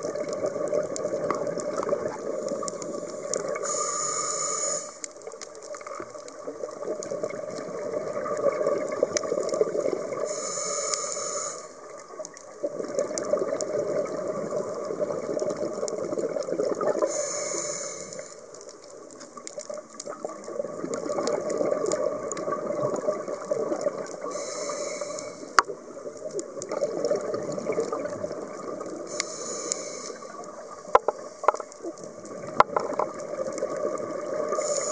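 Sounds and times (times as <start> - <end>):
exhaled bubbles rushing: 0.0 - 3.6, 5.9 - 10.3, 11.8 - 17.1, 19.8 - 24.3, 25.8 - 29.1, 31.8 - 34.9
diver breathing through regulator: 3.6 - 5.1, 10.2 - 11.8, 17.0 - 18.4, 24.2 - 25.6, 29.1 - 30.4.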